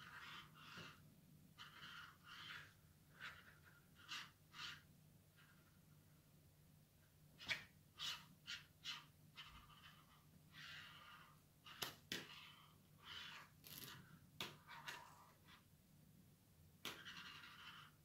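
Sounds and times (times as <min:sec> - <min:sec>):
pen scratching: 0:00.0 - 0:01.0, 0:01.6 - 0:05.7, 0:07.4 - 0:15.6, 0:16.8 - 0:18.0.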